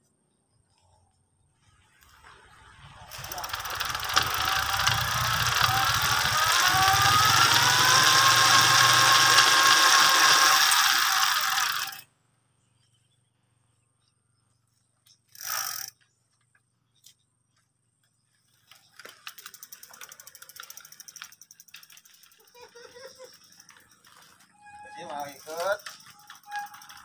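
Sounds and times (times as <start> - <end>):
motorized bicycle engine whine: 2.0 - 12.1, 18.8 - 27.0
freewheel ratchet clicking: 3.1 - 12.0, 15.3 - 16.0, 25.2 - 27.0.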